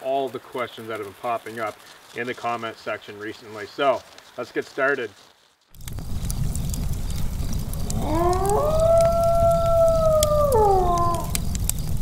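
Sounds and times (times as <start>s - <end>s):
low rumble with crackles: 5.2s - 12.0s
wolf howl: 7.8s - 11.4s.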